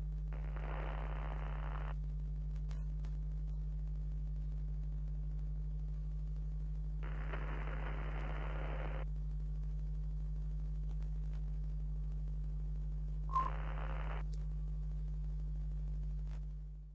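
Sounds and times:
static hiss bursts: 0:00.0 - 0:02.0, 0:07.0 - 0:09.0, 0:13.2 - 0:14.2
low electrical hum: 0:00.0 - 0:16.9.

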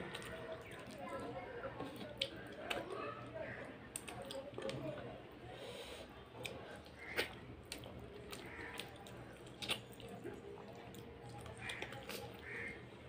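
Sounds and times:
wet chewing and lip smacking: 0:03.9 - 0:05.1, 0:06.4 - 0:12.8
wet mouth clicks: 0:09.6 - 0:10.1.

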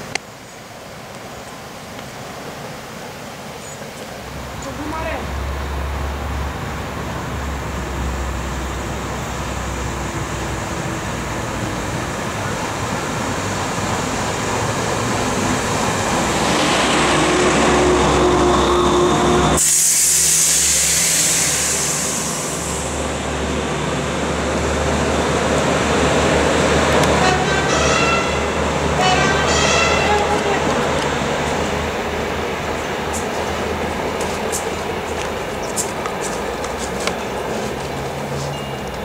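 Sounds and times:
train rolling past: 0:00.9 - 0:39.0
diesel railcar engines running: 0:04.1 - 0:39.0
strong hiss: 0:18.7 - 0:27.2.

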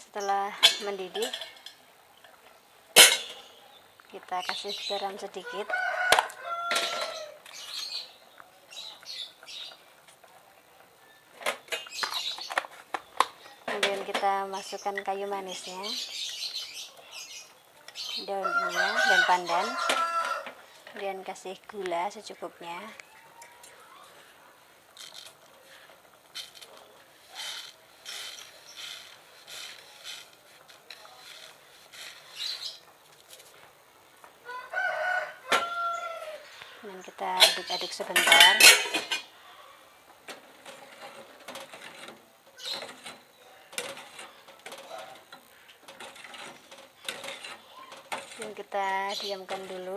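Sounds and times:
rooster crowing: 0:05.4 - 0:07.4, 0:18.3 - 0:20.6, 0:34.4 - 0:36.6
metal spoon scraping sugar: 0:25.0 - 0:32.8, 0:40.6 - 0:49.9.

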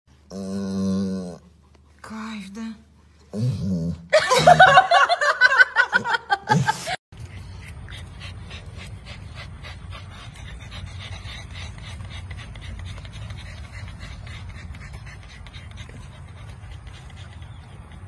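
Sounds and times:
puppies panting: 0:07.2 - 0:18.0.

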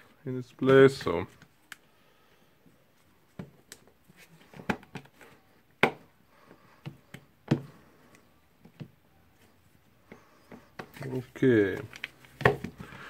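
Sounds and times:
plastic parts clicking and knocking: 0:03.3 - 0:06.1, 0:11.7 - 0:13.0.

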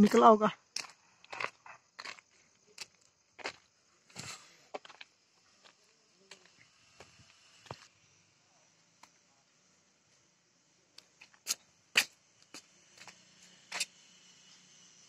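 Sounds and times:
footsteps: 0:00.8 - 0:07.9.

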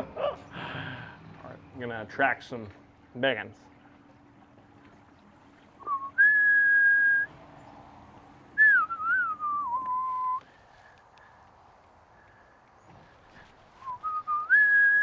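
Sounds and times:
person whistling: 0:05.8 - 0:07.3, 0:08.6 - 0:10.4, 0:13.8 - 0:15.0.

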